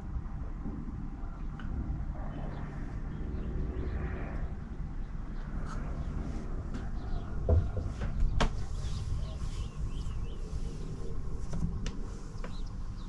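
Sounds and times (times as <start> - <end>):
small birds chirping: 1.3 - 13.0.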